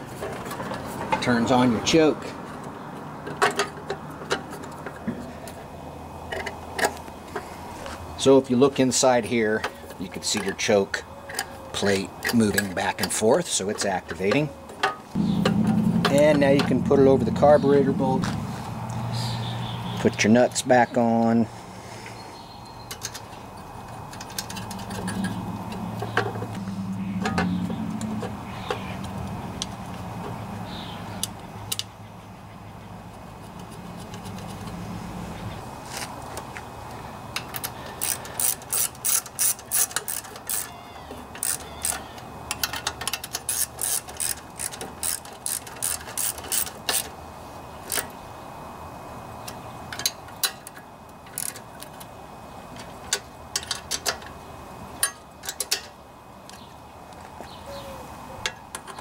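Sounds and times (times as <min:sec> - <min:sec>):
low hum: 0:15.2 - 0:20.0, 0:24.1 - 0:30.7
socket ratchet clicking: 0:37.3 - 0:40.7, 0:41.3 - 0:47.1.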